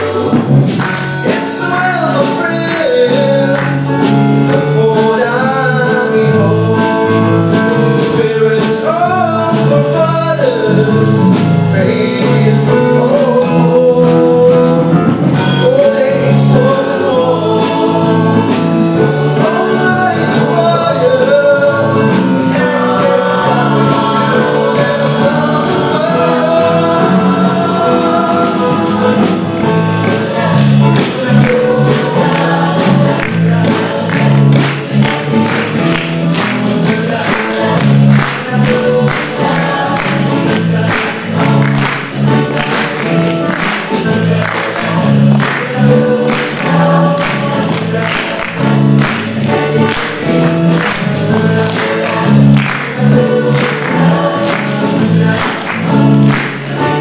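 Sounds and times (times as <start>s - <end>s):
choir singing in harmony: 0.0s - 57.0s
male lead voice singing: 0.0s - 57.0s
rhythmic sharp clicks: 22.4s - 57.0s.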